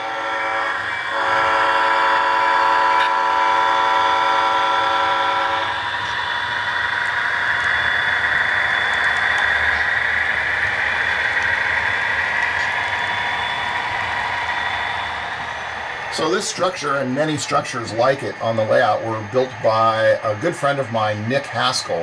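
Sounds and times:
locomotive horn blast: 0.0s - 5.8s
freight train rolling past: 0.0s - 22.0s.

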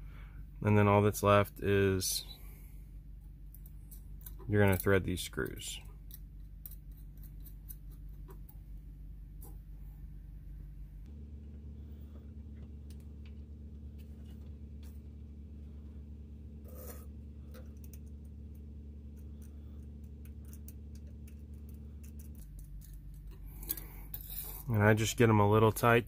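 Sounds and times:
steady low hum: 0.0s - 26.0s
metal screws scraping: 16.6s - 18.0s, 22.0s - 24.7s.

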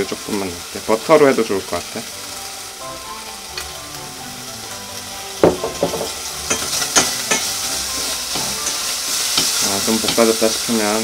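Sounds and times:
bacon sizzling in oil: 0.0s - 11.0s
loud knock: 5.4s - 6.2s.

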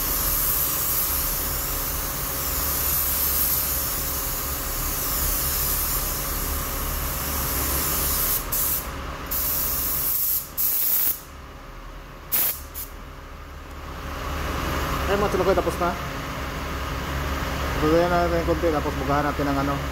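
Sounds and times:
spray gun hissing: 0.0s - 11.3s, 12.3s - 12.9s.

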